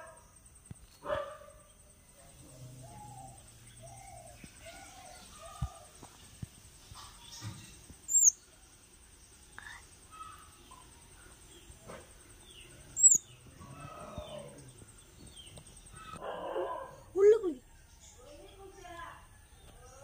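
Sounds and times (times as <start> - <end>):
faint bird chirps: 0.0 - 20.0
sharp bird chirps sliding down: 8.1 - 8.4, 13.0 - 13.2.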